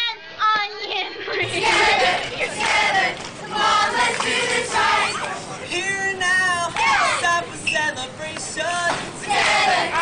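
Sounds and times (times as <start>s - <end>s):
crowd shouting: 1.5s - 5.5s, 6.7s - 7.4s, 9.2s - 10.0s.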